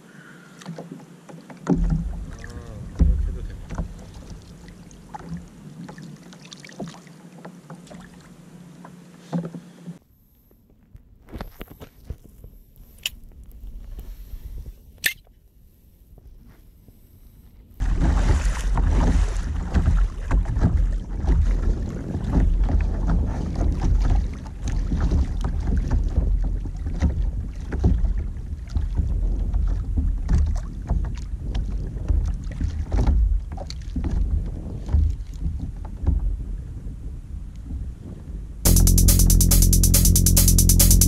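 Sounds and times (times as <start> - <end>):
gusty thumps: 1.7 - 4.7.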